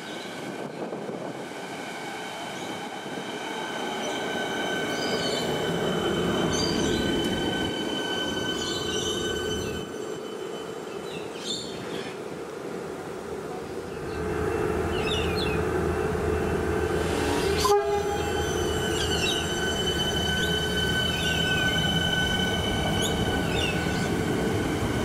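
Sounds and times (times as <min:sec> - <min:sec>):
electric train rumbling past: 0:00.0 - 0:25.0
train wheel squeals: 0:02.6 - 0:12.0, 0:14.5 - 0:25.0.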